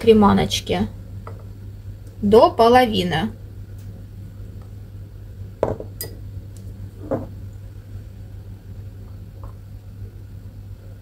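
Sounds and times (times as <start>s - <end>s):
steady low hum: 0.0s - 11.0s
glass bowls knocking on countertop: 5.6s - 6.1s, 7.0s - 7.3s.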